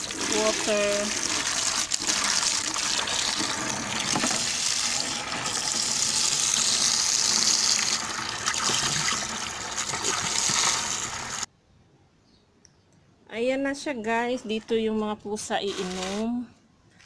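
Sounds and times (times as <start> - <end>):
water pouring into plastic bucket: 0.0 - 11.5.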